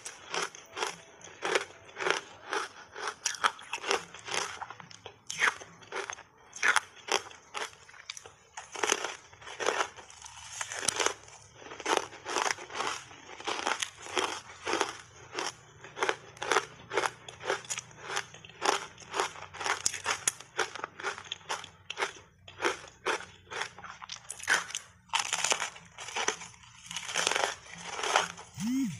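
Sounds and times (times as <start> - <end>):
crunching and chewing ice: 0.0 - 28.9.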